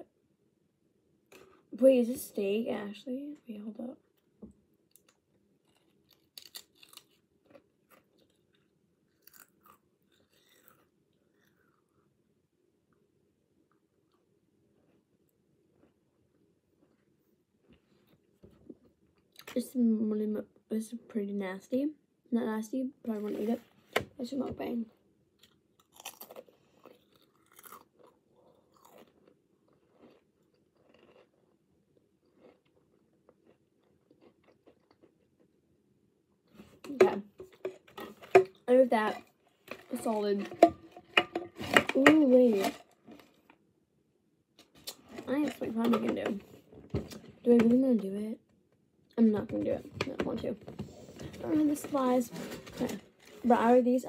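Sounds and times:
chewing: 0:04.9 - 0:12.1, 0:25.4 - 0:35.6
crisp crunching: 0:05.6 - 0:11.8, 0:25.4 - 0:28.1.

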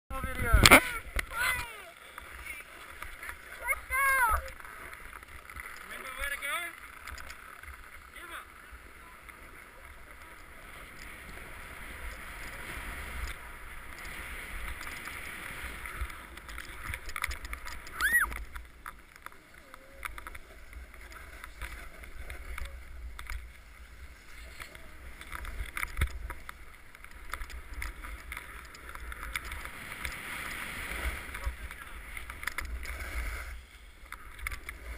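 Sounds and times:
sharp squeak: 0:18.0 - 0:18.3.

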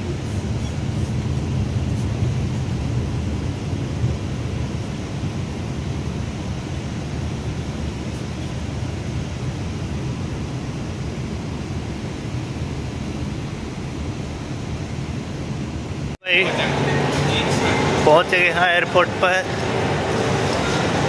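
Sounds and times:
bus engine and road rumble: 0:00.0 - 0:21.0.

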